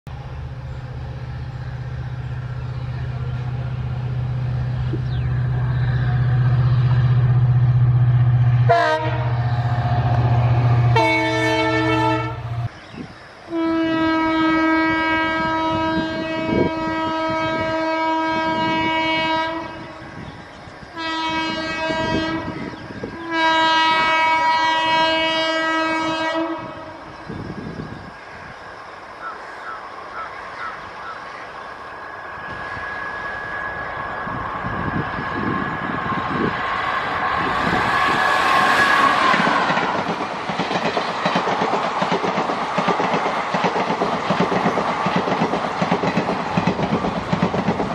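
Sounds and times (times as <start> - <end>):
diesel locomotive engine running: 0.1 - 13.2, 15.4 - 47.9
electric locomotive horn blasts: 6.0 - 12.7, 13.5 - 20.0, 20.9 - 27.1
locomotive horn: 6.2 - 12.7, 13.5 - 20.0, 20.9 - 27.1.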